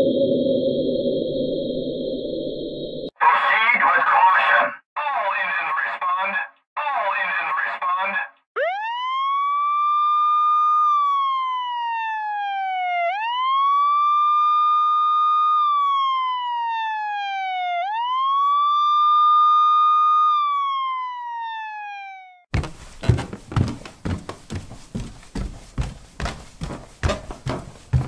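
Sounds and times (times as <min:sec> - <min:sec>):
siren wailing: 0:08.6 - 0:22.5
knocks and clatter: 0:22.5 - 0:28.0.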